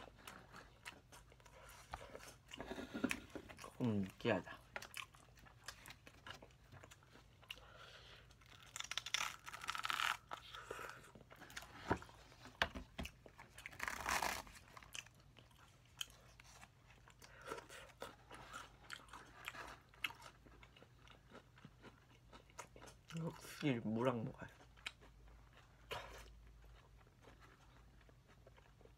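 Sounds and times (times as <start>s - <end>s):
chewing and crunching food: 0.0s - 28.9s.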